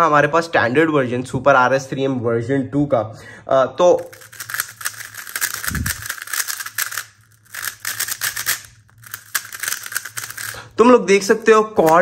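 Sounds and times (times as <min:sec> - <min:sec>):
speedcube layers clicking: 0:04.0 - 0:10.6, 0:11.2 - 0:12.0.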